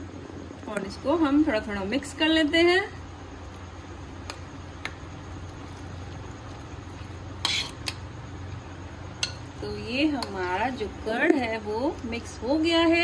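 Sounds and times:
steady low hum: 0.0 - 13.0
wet mixing in bowl: 4.3 - 8.0.

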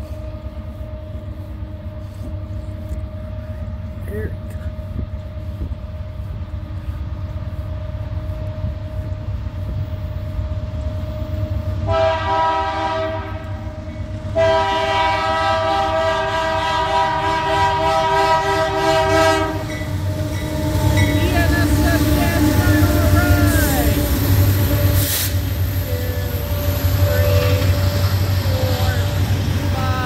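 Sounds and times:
train low rumble: 0.0 - 30.0
train air horn blasts: 10.3 - 30.0.

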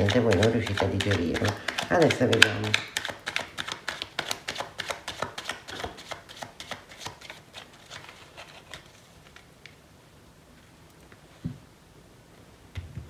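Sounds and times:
cards clicking: 0.0 - 9.5.

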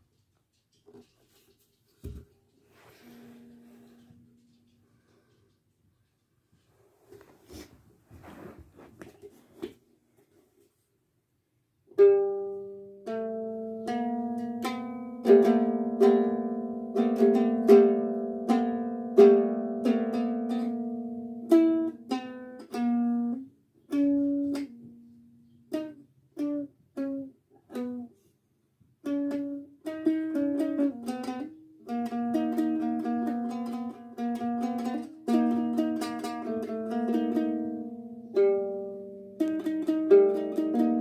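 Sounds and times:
ukulele strummed and plucked: 11.9 - 28.2, 29.0 - 41.0.

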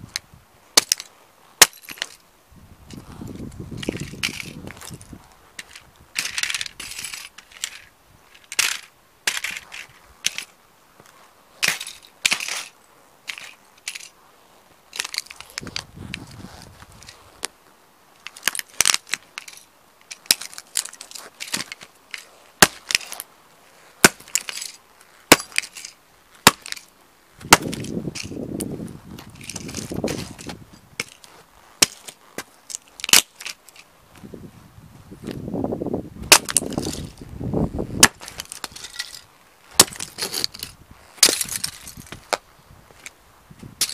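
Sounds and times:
toy cars crunching under boots: 0.8 - 2.2, 2.8 - 34.4, 36.2 - 43.9.

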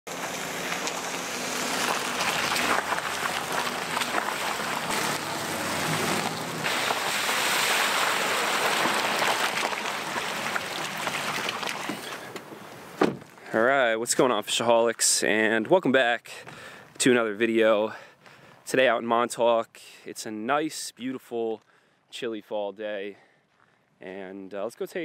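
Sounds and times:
water splashing under tyres: 0.1 - 13.0
gravel crackling under tyres: 0.1 - 19.4, 21.1 - 25.0.

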